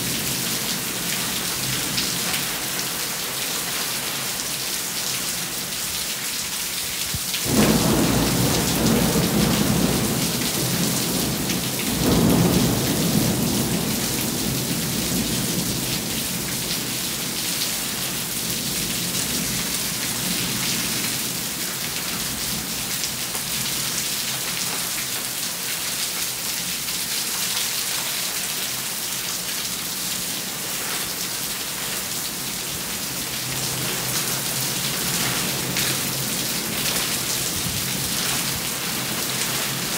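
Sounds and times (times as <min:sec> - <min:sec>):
steady rain: 0:00.0 - 0:39.9
thunder rumbling: 0:07.4 - 0:16.6.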